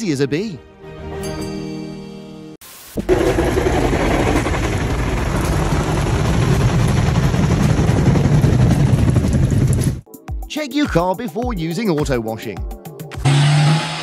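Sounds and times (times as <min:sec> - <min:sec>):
music: 0:00.0 - 0:02.6, 0:10.0 - 0:13.3
machinery rumble: 0:03.0 - 0:10.0.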